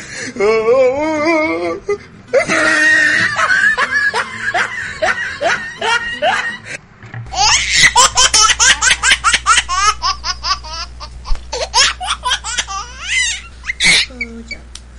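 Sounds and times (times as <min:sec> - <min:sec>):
high-pitched giggling laughter: 0:02.3 - 0:06.8, 0:07.4 - 0:14.3.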